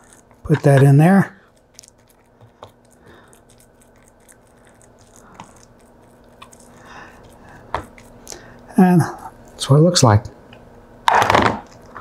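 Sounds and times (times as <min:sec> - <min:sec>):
wet squishing of hands in meat: 0:00.0 - 0:08.7.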